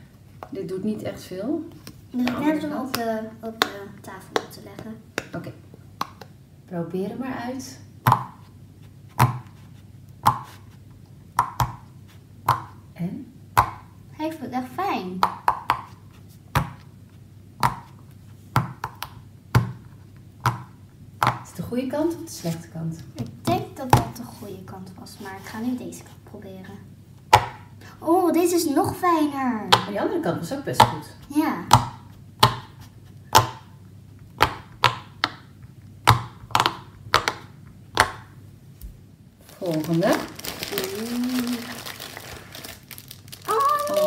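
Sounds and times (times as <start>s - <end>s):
pop-it toy bubbles popping: 8.0s - 8.4s, 11.4s - 11.8s, 34.4s - 35.4s, 36.0s - 38.3s.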